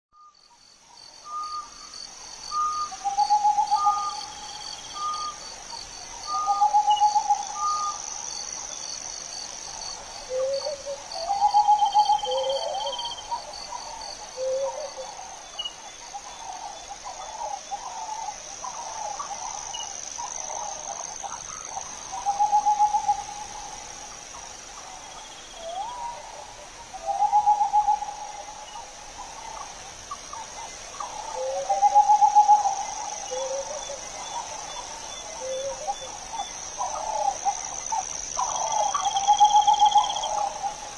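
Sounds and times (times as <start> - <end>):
crickets chirring: 0.2 - 40.9
owl hooting: 10.3 - 13.1.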